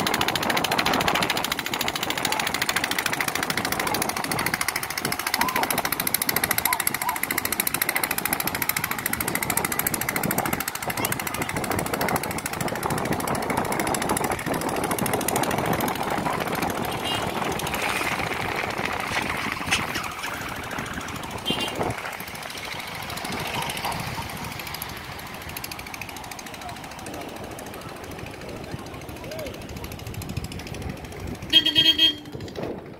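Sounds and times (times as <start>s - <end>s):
vehicle rattling and rumbling: 0.0s - 32.9s.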